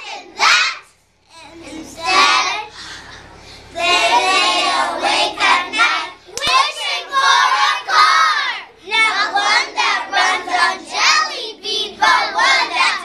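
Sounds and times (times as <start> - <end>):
children singing in unison: 0.0 - 0.9, 3.7 - 13.0.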